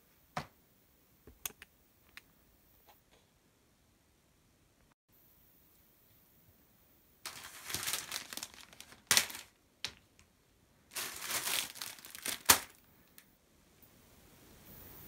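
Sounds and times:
plastic packaging crinkling: 0:07.3 - 0:10.2, 0:10.9 - 0:13.2.

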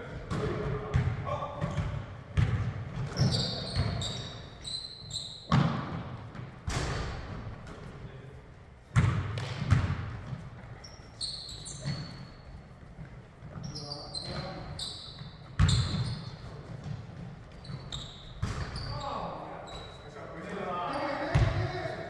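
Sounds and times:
basketball bouncing on hardwood floor: 0:00.3 - 0:04.0, 0:09.0 - 0:10.5, 0:15.2 - 0:16.2
sneaker squeaks: 0:01.6 - 0:06.0, 0:09.0 - 0:21.7.

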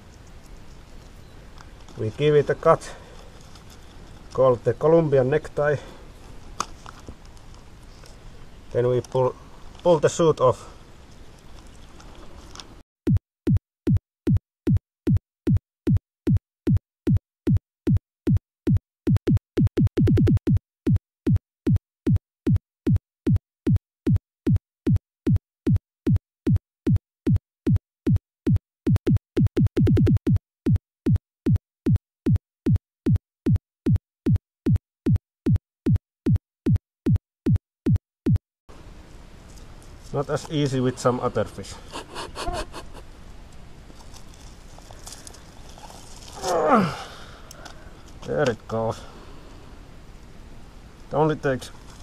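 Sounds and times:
drum machine kick beat: 0:13.1 - 0:38.4.

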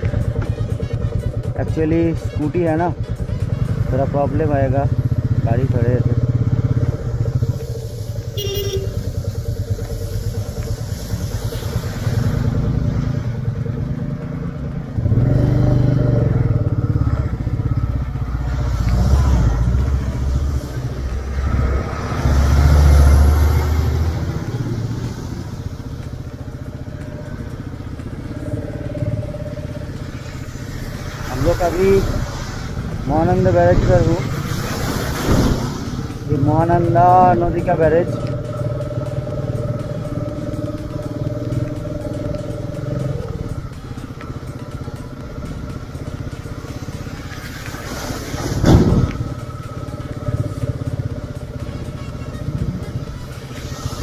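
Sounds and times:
motorcycle engine running: 0:00.0 - 0:54.0
loud rush of noise: 0:27.1 - 0:36.6.

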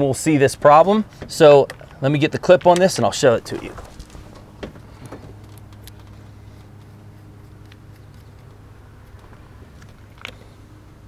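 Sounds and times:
low hum: 0:03.1 - 0:11.0.

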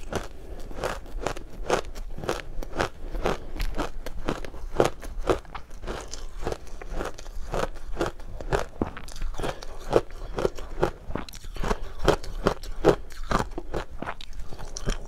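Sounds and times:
crunching and chewing ice: 0:00.0 - 0:15.0.

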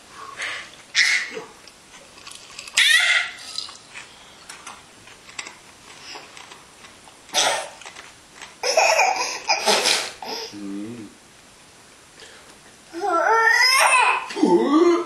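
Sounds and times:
baby laughing: 0:08.6 - 0:10.5.

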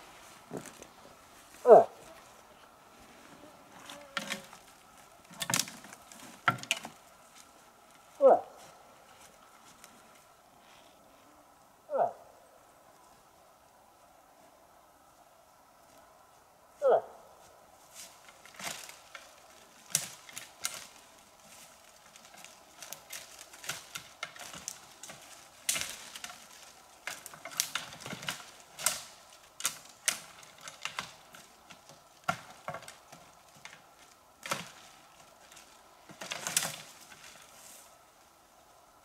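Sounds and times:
footsteps crunching on leaves: 0:17.4 - 0:27.3.

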